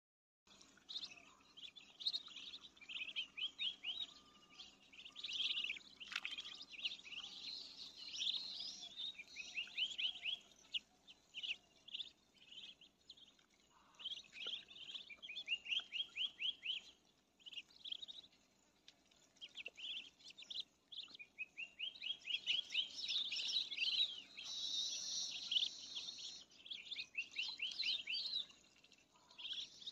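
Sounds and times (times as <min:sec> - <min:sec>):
ducklings peeping: 0:00.8 - 0:29.9.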